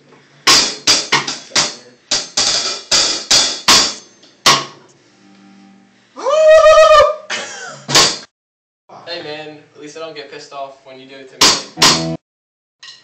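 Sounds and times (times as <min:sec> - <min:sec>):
drum kit hits: 0:00.5 - 0:04.8, 0:07.9 - 0:08.3, 0:11.4 - 0:12.2.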